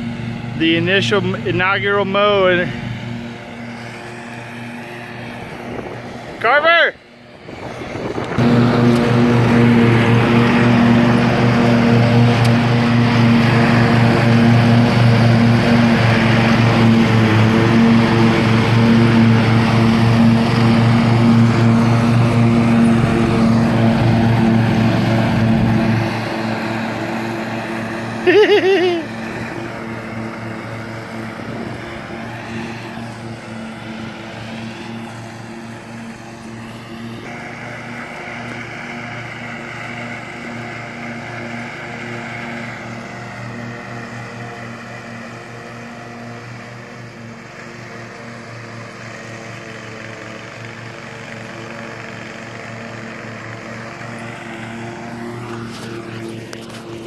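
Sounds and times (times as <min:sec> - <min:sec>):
riding lawn mower engine running: 0:00.0 - 0:57.0
person calling out: 0:06.4 - 0:07.0, 0:28.3 - 0:29.1.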